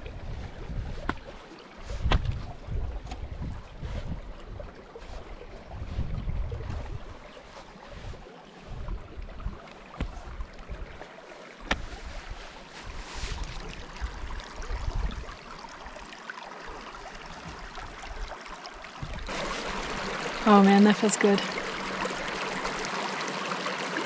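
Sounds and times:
wind rumbling on microphone: 0.0 - 15.8, 19.0 - 19.4
stream trickling over rocks: 0.0 - 24.0.

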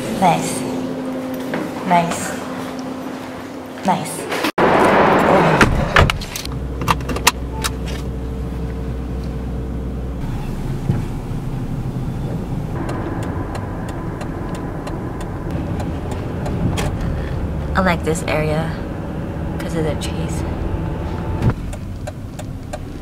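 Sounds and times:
car engine low hum: 4.6 - 23.0
car door shutting: 10.2 - 17.2.

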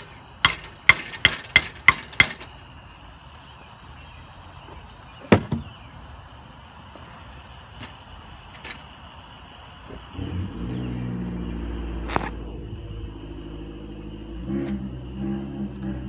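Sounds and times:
engine running: 9.7 - 16.0.

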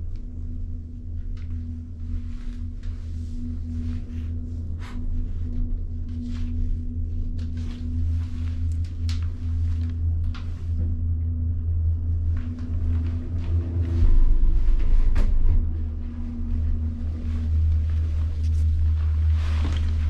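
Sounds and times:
drone-like tone: 0.0 - 20.0
low mechanical hum: 0.0 - 20.0
light clicks and rustles: 5.5 - 11.4.

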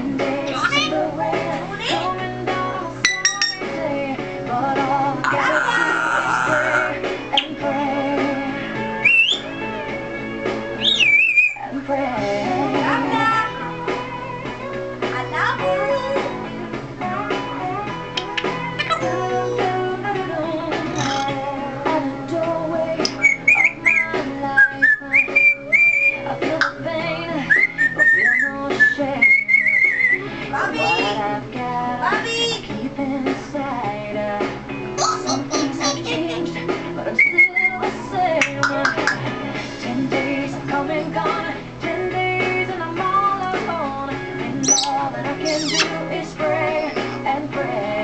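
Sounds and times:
guitar music: 0.0 - 48.0
parrot whistling: 9.0 - 9.5, 10.8 - 11.6, 23.0 - 26.3, 27.4 - 30.7, 37.2 - 37.8, 44.6 - 46.0.

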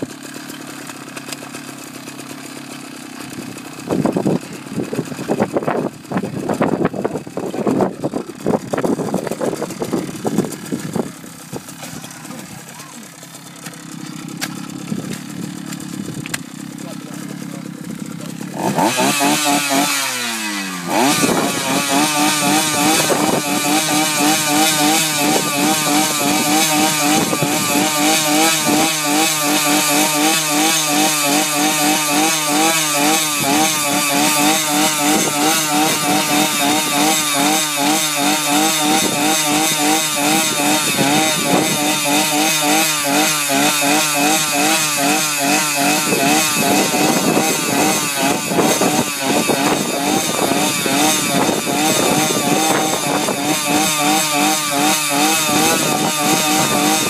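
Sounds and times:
small engine running: 0.0 - 57.0.

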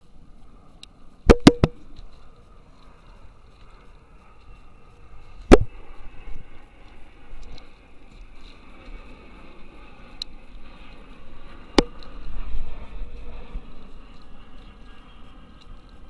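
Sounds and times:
wind: 0.0 - 16.0.

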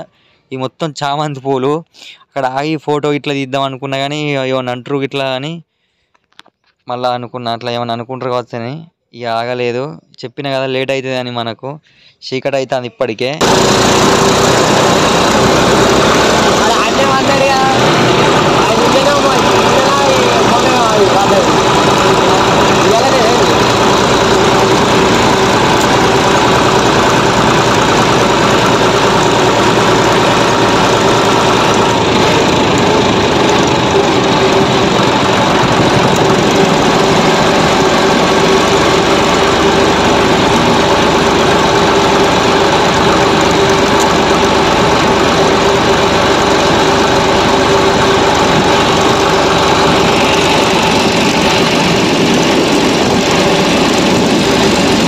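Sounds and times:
tractor diesel engine running: 13.4 - 55.0.

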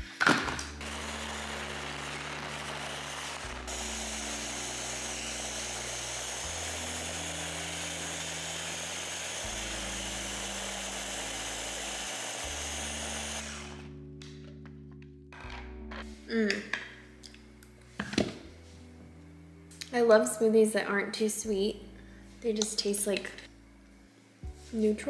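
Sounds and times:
blender motor running: 0.5 - 13.9
soft background music: 3.8 - 25.0.

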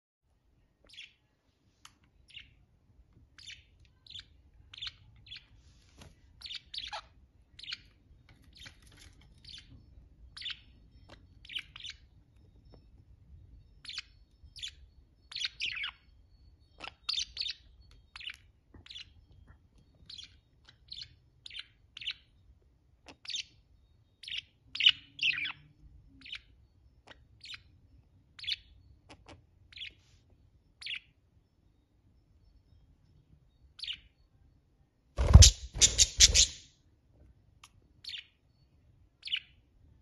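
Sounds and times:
budgerigars chirping: 6.4 - 7.9, 13.8 - 16.0, 35.2 - 36.7.

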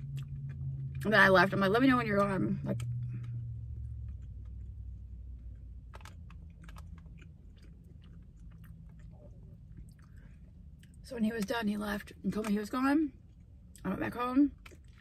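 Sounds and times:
person chewing: 0.0 - 1.0, 2.7 - 11.0, 14.6 - 15.0
low car cabin hum: 0.0 - 15.0.

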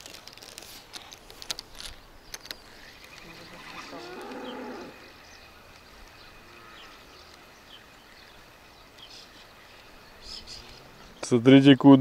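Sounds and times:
rural ambience: 0.0 - 12.0
high bird chirps: 2.3 - 11.3.

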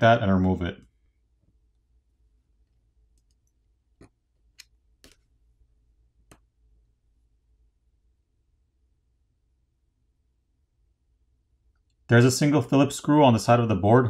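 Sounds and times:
faint clicks: 3.1 - 5.3.

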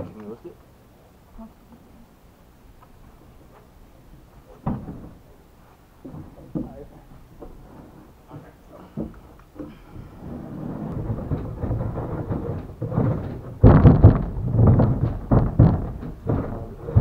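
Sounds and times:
wood scraping on boat deck: 4.4 - 17.0
heavy wooden knocks on deck: 4.6 - 5.2, 6.0 - 7.6, 10.8 - 17.0.

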